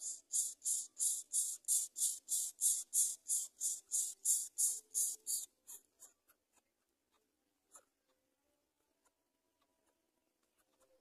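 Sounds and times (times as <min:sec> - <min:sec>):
nestlings begging with raspy hisses: 0:00.0 - 0:05.5.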